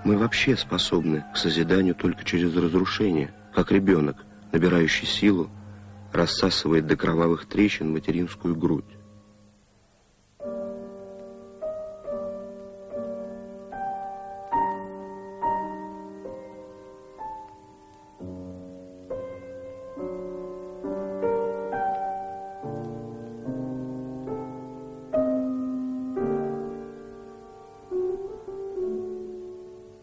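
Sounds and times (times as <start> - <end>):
slow solo piano: 10.3 - 30.0.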